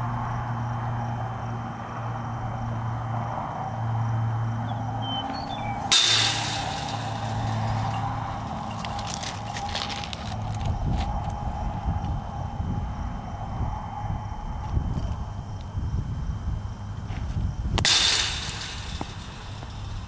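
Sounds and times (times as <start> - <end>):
steady low hum: 0.0 - 20.0
baseball smacking chain-link fence: 5.8 - 10.2, 17.8 - 20.0
chain-link fence rattling: 5.9 - 10.6, 17.8 - 20.0.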